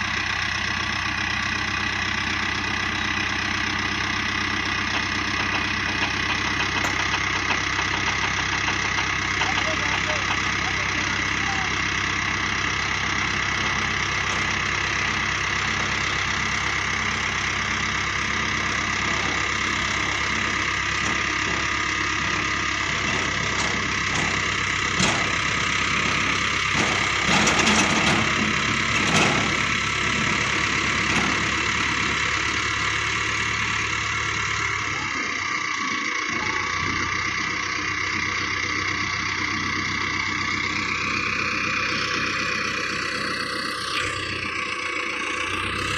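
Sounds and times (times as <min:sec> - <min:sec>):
tractor diesel engine running: 0:00.0 - 0:45.9
knocks and rattles: 0:04.8 - 0:10.7, 0:19.1 - 0:31.6.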